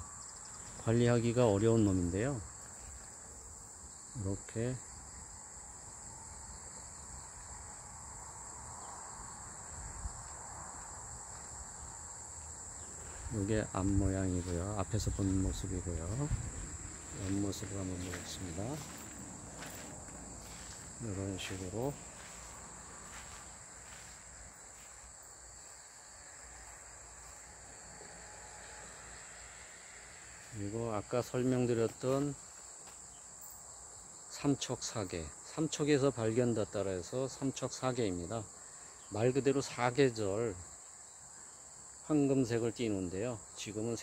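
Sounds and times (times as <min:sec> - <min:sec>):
crickets chirping: 0:00.0 - 0:44.0
high-pitched insect chorus: 0:00.0 - 0:44.0.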